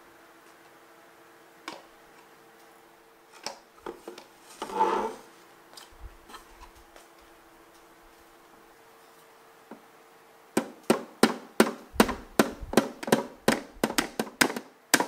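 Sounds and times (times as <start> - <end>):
faint steady hum: 0.0 - 15.0
brief scrape: 4.5 - 5.3
shelf panels knocking: 10.6 - 15.0.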